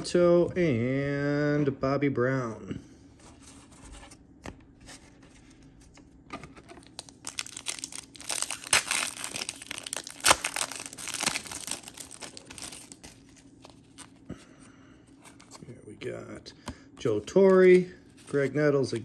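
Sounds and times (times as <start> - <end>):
foil wrapper crinkling: 6.8 - 14.2
foil wrapper ripping: 6.9 - 13.1.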